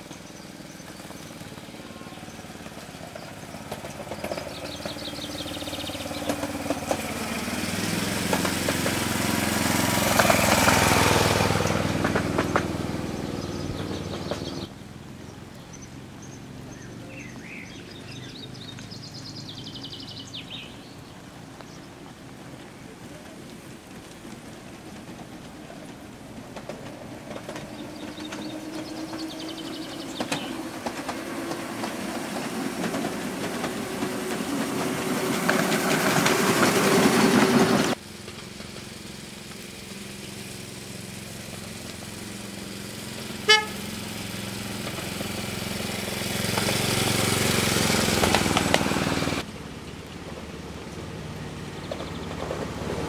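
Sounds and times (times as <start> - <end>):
miniature locomotive running on rails: 0.0 - 14.8, 21.3 - 53.0
locomotive horn toot: 43.4 - 44.0.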